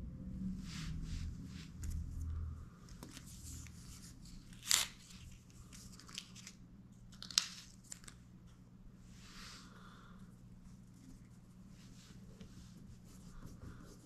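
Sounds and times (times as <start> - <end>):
low steady hum: 0.0 - 14.0
film backing rustling and crinkling: 1.7 - 8.6
sharp crisp tearing: 4.5 - 5.2.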